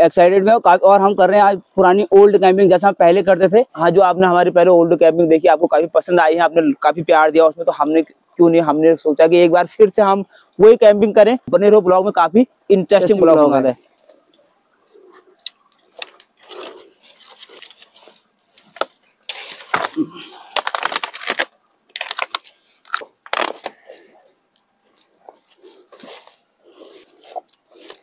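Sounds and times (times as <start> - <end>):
dry branches and twigs crackling: 14.0 - 28.0.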